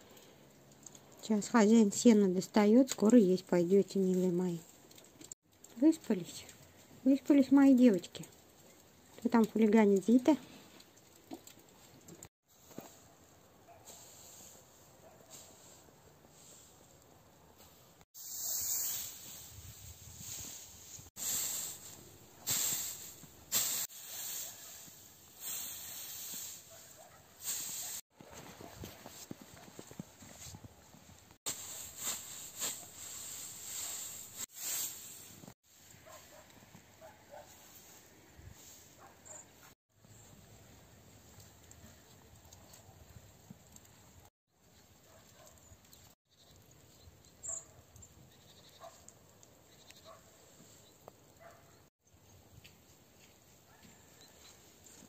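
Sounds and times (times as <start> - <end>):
hay rake swishing: 17.6 - 28.0, 31.5 - 36.4.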